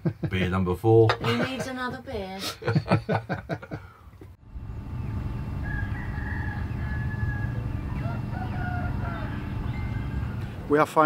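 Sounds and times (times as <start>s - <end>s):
man laughing: 0.0s - 0.6s, 1.2s - 1.7s, 2.4s - 4.0s
steady low rumble: 4.4s - 10.9s
distant roosters crowing: 4.5s - 10.8s.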